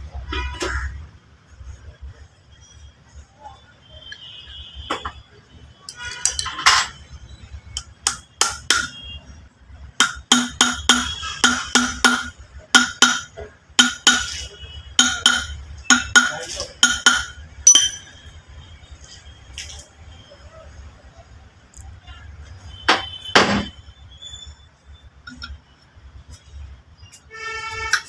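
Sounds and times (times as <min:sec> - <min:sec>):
ringing metallic clinks: 0:15.0 - 0:18.2.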